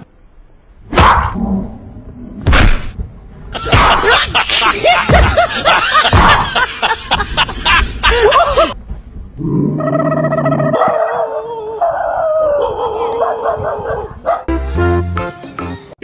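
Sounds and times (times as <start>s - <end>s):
dog yelping: 9.8s - 14.5s.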